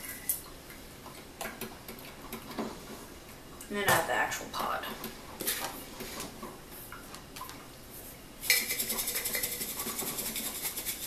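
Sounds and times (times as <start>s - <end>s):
sugar rattling in glass jar: 8.5s - 11.0s.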